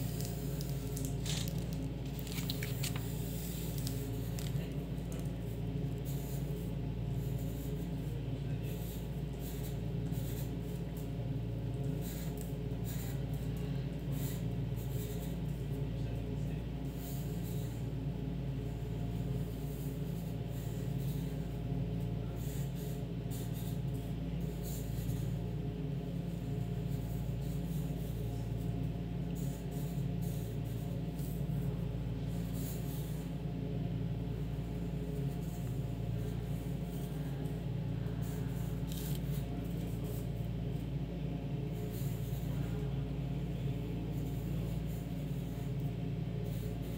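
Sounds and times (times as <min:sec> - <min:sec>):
pencil scratching on paper: 0:06.0 - 0:10.8, 0:11.9 - 0:13.3, 0:35.1 - 0:40.5.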